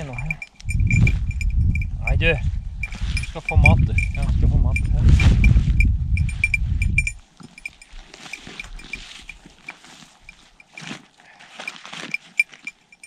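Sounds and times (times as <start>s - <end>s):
low rumble: 0.0s - 7.8s
light high ticking: 0.0s - 10.8s, 12.1s - 13.0s.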